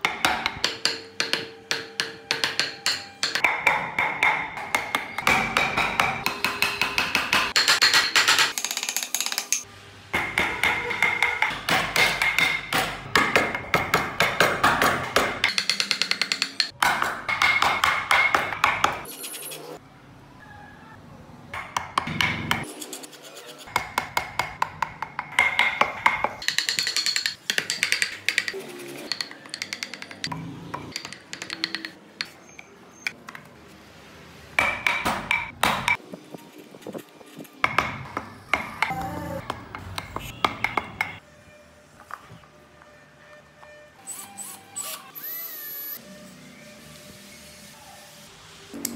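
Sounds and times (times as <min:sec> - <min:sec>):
mallet tapping chisel into wood: 0:00.0 - 0:08.5, 0:10.2 - 0:19.0, 0:21.6 - 0:22.6, 0:23.8 - 0:32.4, 0:37.6 - 0:41.2.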